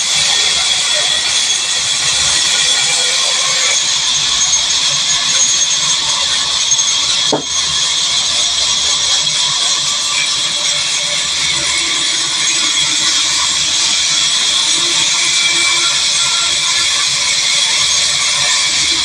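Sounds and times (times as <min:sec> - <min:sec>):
band saw cutting log: 0:07.3 - 0:07.9.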